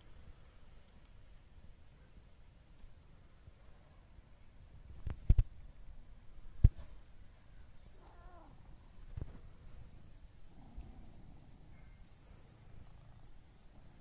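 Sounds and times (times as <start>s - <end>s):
faint bird chirps: 1.6s - 2.3s, 3.2s - 5.3s, 11.5s - 14.0s.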